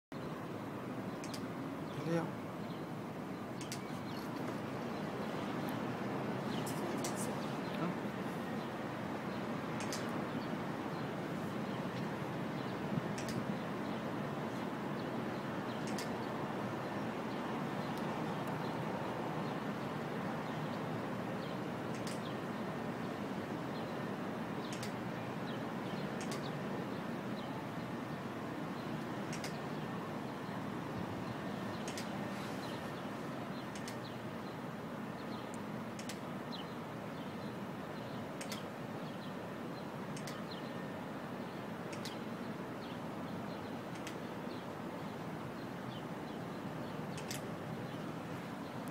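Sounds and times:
city background noise: 0.1s - 48.9s
faint high clicks: 1.2s - 1.5s, 3.6s - 4.6s, 9.8s - 10.2s, 13.2s - 13.4s, 15.8s - 16.2s, 21.9s - 22.3s, 24.7s - 25.0s, 26.2s - 26.5s, 29.3s - 29.6s, 31.8s - 32.2s, 33.7s - 34.1s, 35.5s - 36.3s, 38.4s - 38.7s, 40.1s - 40.5s, 41.9s - 42.2s, 43.9s - 44.2s, 47.1s - 47.5s.

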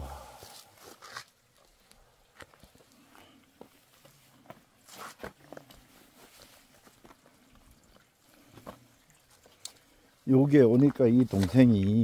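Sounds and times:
faint fire clicks: 9.1s - 10.0s.

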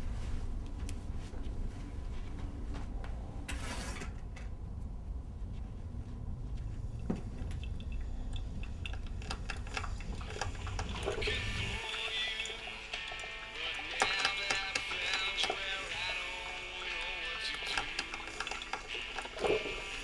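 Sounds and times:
low room rumble: 0.0s - 13.5s.

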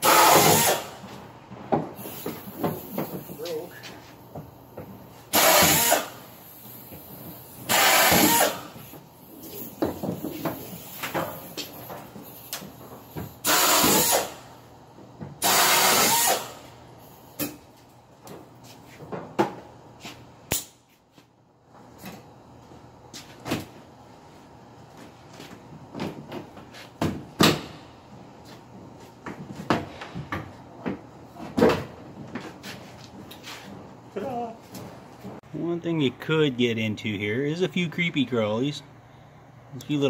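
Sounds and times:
pneumatic drill drilling rivets: 0.0s - 1.0s, 5.3s - 6.2s, 7.7s - 8.8s, 13.4s - 14.5s, 15.4s - 16.6s.

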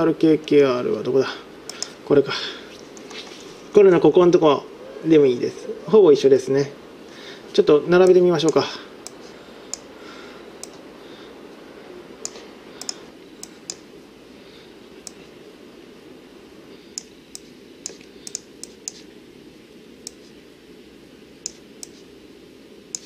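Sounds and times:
steady low hum: 0.0s - 23.0s
computer mouse clicks: 1.7s - 2.0s, 10.6s - 10.8s, 12.2s - 13.8s, 16.9s - 19.1s, 20.0s - 20.3s, 21.4s - 22.0s.

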